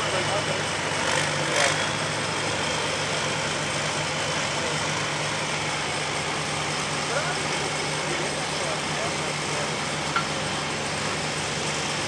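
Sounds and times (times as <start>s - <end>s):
tractor engine idling: 0.0s - 12.0s.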